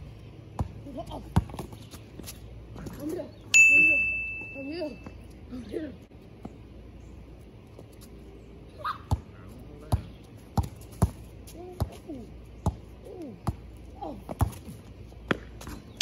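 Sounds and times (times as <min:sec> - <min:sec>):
basketball bouncing on concrete: 0:00.5 - 0:02.3, 0:09.1 - 0:12.0, 0:12.6 - 0:15.8.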